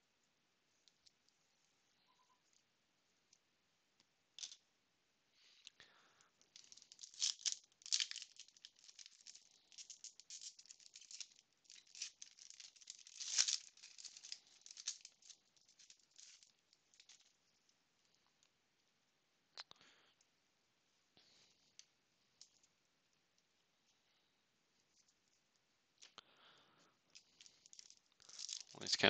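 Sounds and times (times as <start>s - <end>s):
foil wrapper crinkling: 6.5s - 17.4s, 27.2s - 28.9s.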